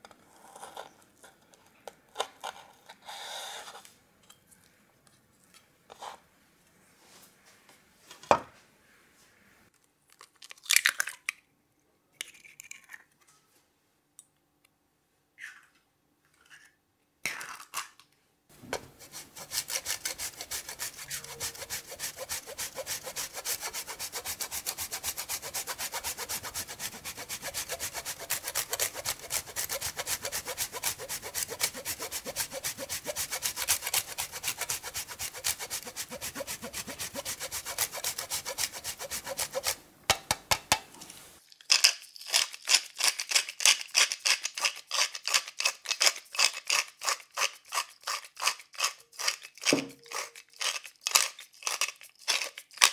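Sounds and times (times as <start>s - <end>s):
cheese grating on a grater: 18.8s - 39.8s, 41.8s - 52.9s
pepper mill grinding: 18.8s - 39.8s, 41.4s - 52.9s.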